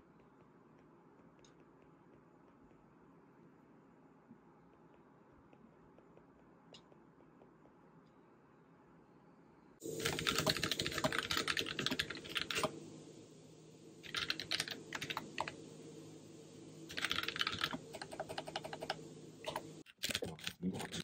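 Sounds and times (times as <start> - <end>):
low steady hum: 0.0 - 21.0
fast typing on keyboard: 10.0 - 12.7, 14.0 - 15.6, 16.9 - 21.0.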